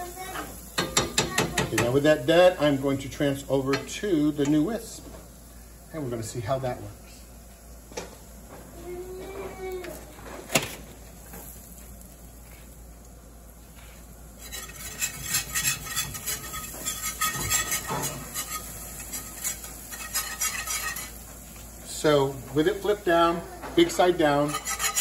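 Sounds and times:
whisk scraping in a skillet: 13.9 - 21.8, 22.5 - 25.0.

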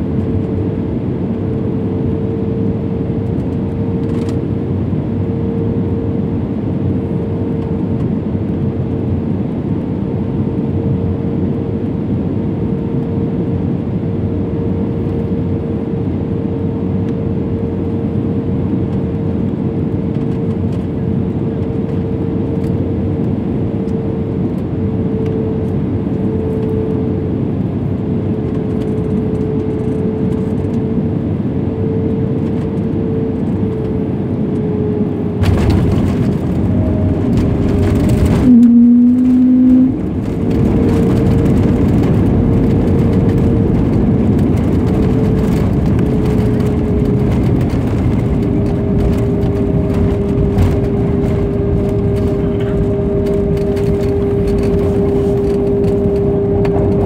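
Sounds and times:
airplane engine hum: 0.0 - 57.0
wheels touching down rumble: 35.4 - 57.0.

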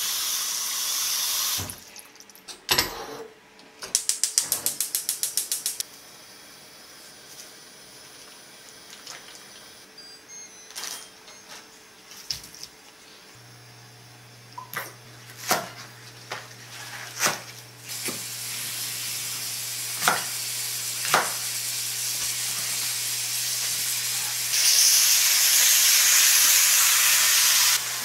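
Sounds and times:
meat sizzling in oil: 17.8 - 28.0
knife chopping on wooden board: 20.0 - 20.3.

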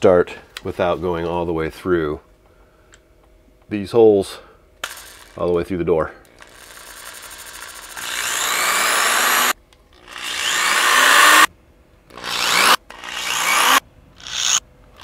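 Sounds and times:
electric drill boring into wood: 6.4 - 11.5, 12.1 - 14.6.

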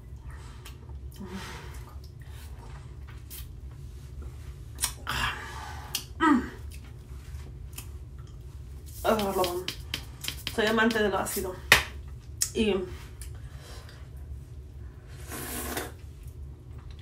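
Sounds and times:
wet lip and tongue clicks: 4.8 - 5.0.

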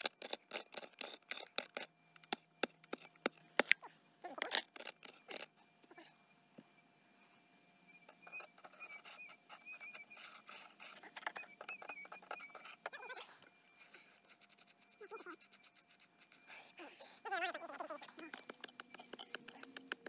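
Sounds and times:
digging tool scraping stony ground: 0.0 - 1.9, 2.9 - 5.5.

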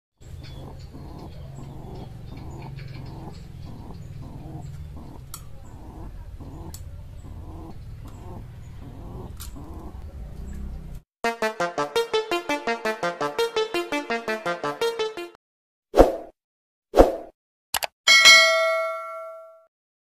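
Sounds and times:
pigeons cooing: 0.2 - 10.9
sharp clicks: 17.8 - 18.0.

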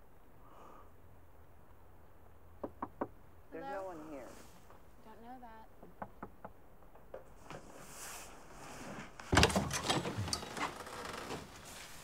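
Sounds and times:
door unlatching clack: 9.3 - 11.5
glass-paned door rattling: 9.3 - 11.6.

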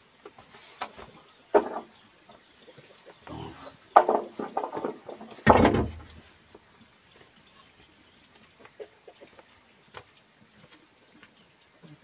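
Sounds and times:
bamboo pipe thudding on ground: 4.0 - 6.2.

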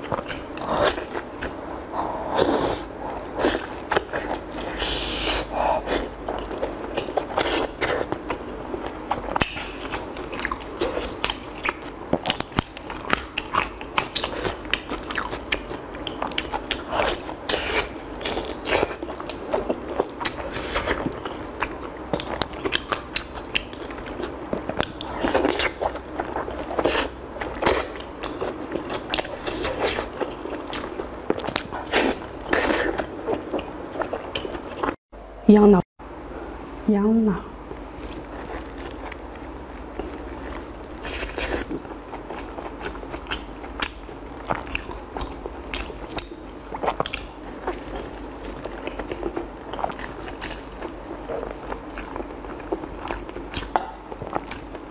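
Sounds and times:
wet chewing and mouth clicks: 38.0 - 54.9.

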